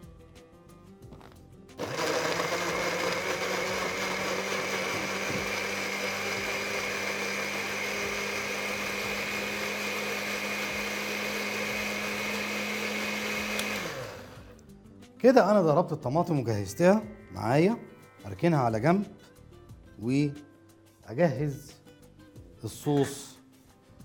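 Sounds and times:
electric blender running: 1.8s - 14.6s.

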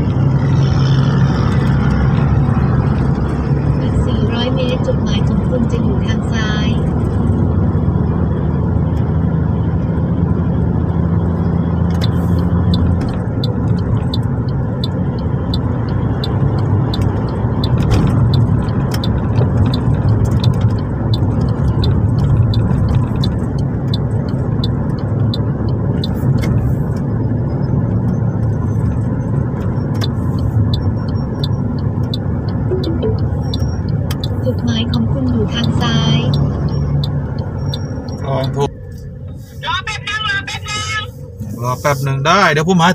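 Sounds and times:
car engine hum with road rumble: 0.0s - 42.9s
light regular ticking: 11.9s - 39.4s.

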